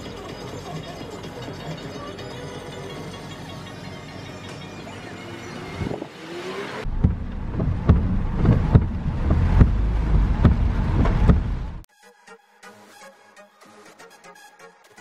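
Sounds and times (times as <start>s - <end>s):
background music: 0.0s - 6.8s, 11.5s - 15.0s
car rumbling: 0.0s - 11.9s
knocks and thumps on wet road: 6.8s - 11.9s.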